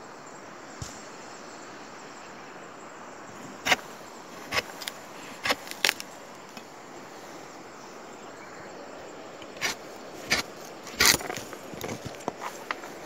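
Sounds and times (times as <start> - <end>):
outdoor hiss: 0.0 - 13.0
footsteps crunching through brush: 3.5 - 6.2.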